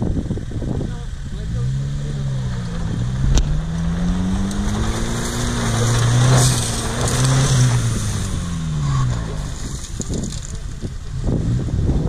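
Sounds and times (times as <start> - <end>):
engine revving under load: 1.2 - 10.4
wheels spinning in dirt: 2.1 - 12.0.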